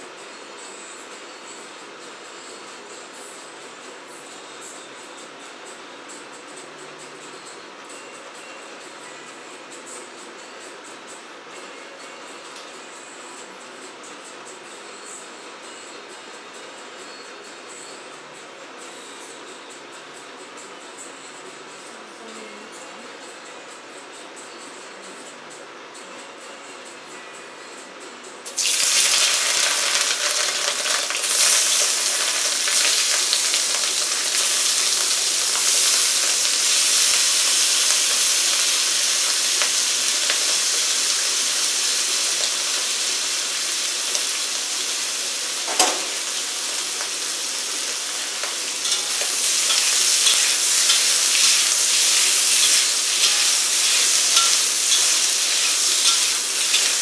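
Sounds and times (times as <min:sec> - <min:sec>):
food sizzling in a wok: 0:28.4 - 0:57.0
metal spatula scraping wok: 0:48.5 - 0:57.0.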